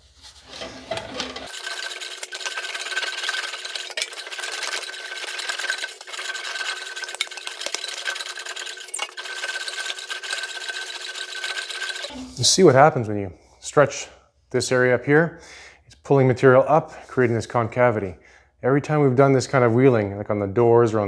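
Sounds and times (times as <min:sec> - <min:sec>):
english wheel rolling sheet metal: 0:00.4 - 0:12.1.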